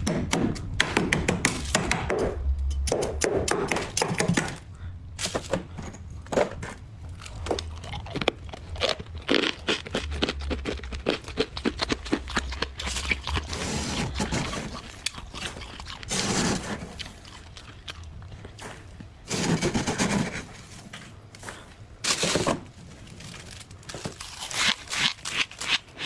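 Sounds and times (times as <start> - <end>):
scraper scraping frost: 13.5 - 14.8, 16.1 - 17.0, 19.2 - 20.8.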